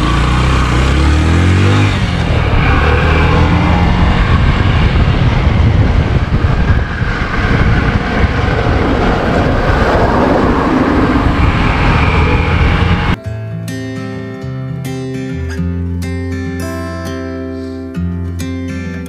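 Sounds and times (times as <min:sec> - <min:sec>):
motorcycle engine running: 0:00.0 - 0:13.2
wind on microphone: 0:01.8 - 0:13.2.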